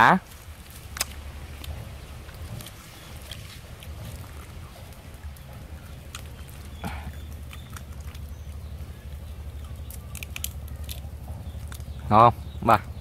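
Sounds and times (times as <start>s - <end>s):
low steady rumble: 0.0s - 13.0s
shrimp shell being peeled: 9.6s - 11.9s.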